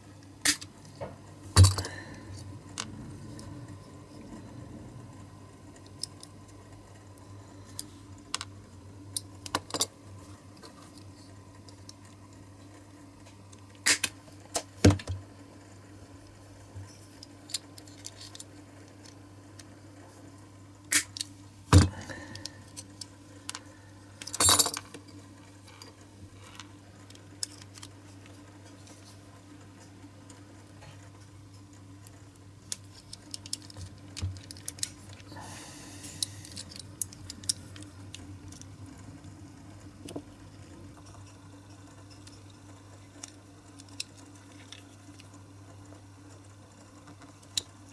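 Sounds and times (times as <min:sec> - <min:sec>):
faint steady hum: 0:00.0 - 0:47.9
small parts rattling: 0:25.6 - 0:28.3, 0:32.0 - 0:35.3, 0:36.1 - 0:38.8.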